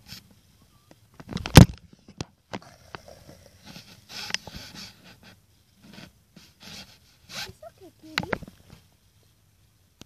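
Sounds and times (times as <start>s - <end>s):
phone microphone handling noise: 1.1s - 4.8s.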